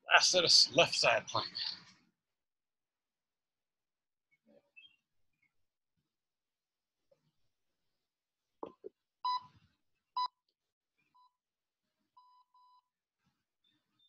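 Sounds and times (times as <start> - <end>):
electronic timer beeps: 9.3 - 9.5.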